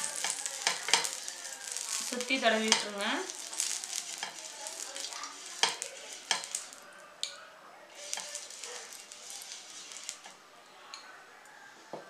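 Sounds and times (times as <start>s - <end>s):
brush scraping a hot pan: 0.0s - 6.8s, 7.9s - 10.4s.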